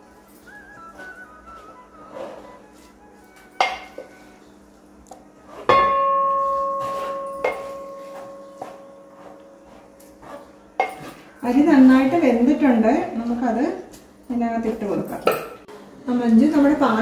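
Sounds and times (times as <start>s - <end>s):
ringing pot: 3.6s - 4.1s, 5.8s - 9.6s.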